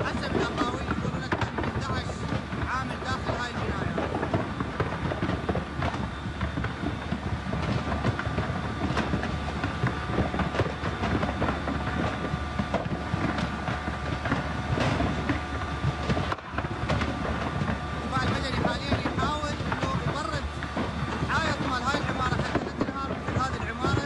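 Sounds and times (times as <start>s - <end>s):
fire crackling and popping: 0.0s - 24.0s
large fire rumbling: 0.0s - 24.0s.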